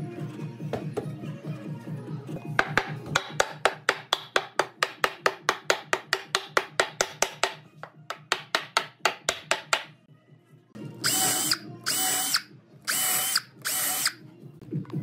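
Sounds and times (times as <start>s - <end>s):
wooden mallet knocking on timber: 2.6s - 9.9s.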